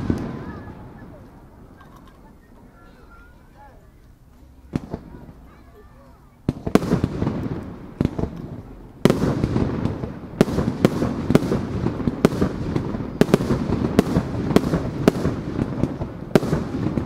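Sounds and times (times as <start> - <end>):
fireworks booming and crackling: 0.0 - 3.4, 4.6 - 17.0.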